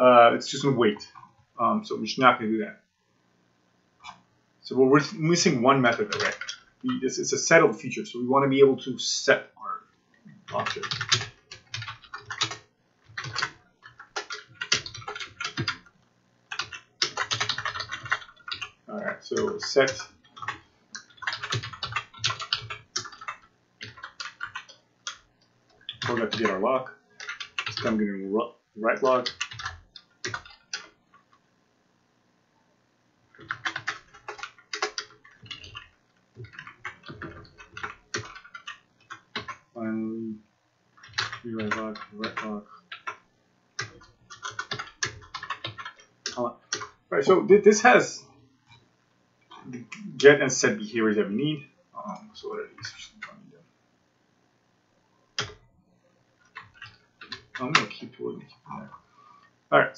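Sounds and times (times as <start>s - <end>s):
typing on a keyboard: 6.0s - 6.7s, 10.5s - 15.9s, 16.5s - 18.8s, 19.4s - 26.6s, 27.2s - 28.0s, 29.2s - 31.4s, 33.3s - 39.7s, 41.0s - 43.2s, 43.8s - 47.0s, 55.4s - 55.6s, 56.5s - 58.0s.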